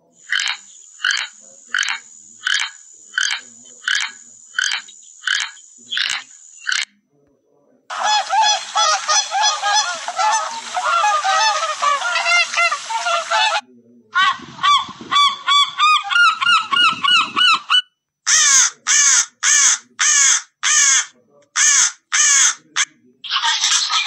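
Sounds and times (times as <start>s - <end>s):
bird harsh calls: 0.0s - 6.9s, 7.9s - 13.6s, 14.2s - 24.0s
swans calling: 0.0s - 6.9s, 7.9s - 13.6s
seagull calls: 7.9s - 13.6s, 14.2s - 24.0s.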